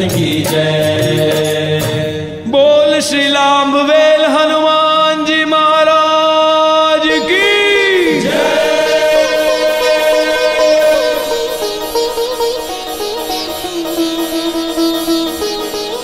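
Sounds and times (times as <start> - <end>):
chorus chanting long notes: 6.6 - 16.0.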